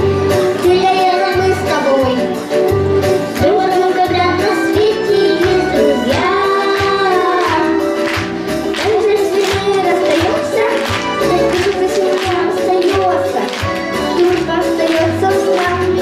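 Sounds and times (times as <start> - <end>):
children singing: 8.7 - 16.0.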